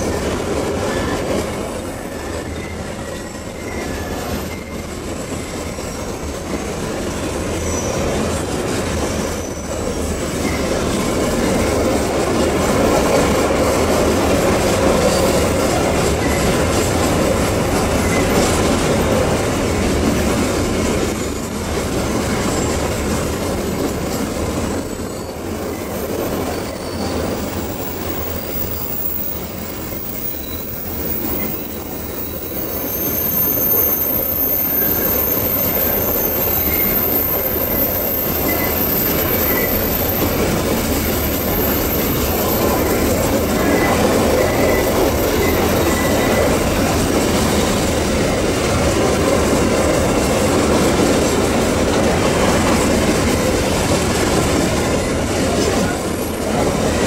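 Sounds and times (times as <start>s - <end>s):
train wheels rumbling on rails: 0.0s - 57.0s
high-pitched wheel squeal: 0.8s - 6.3s, 7.6s - 8.2s, 23.7s - 47.8s.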